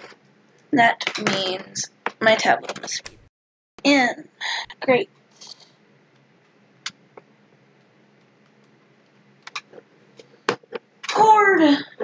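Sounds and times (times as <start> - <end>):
sharp clicks: 3.0 - 3.3
faint hum and hiss: 3.9 - 12.0.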